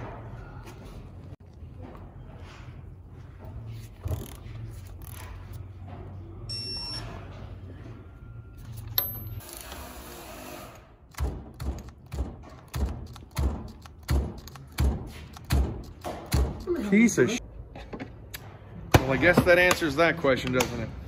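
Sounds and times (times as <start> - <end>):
short electronic beep: 6.5 - 7.2.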